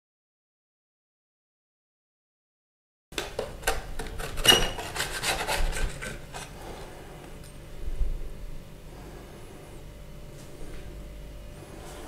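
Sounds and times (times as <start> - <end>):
metal spatula scraping tray: 4.0 - 6.8.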